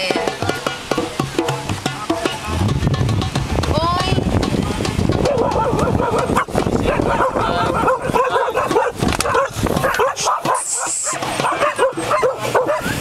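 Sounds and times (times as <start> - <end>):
people's voices: 0.0 - 13.0
dog yipping: 5.2 - 13.0.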